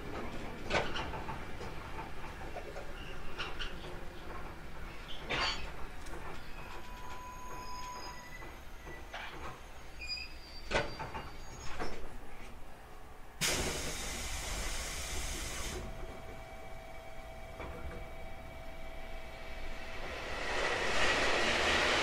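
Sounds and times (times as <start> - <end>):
compressed air hissing: 13.4 - 15.8.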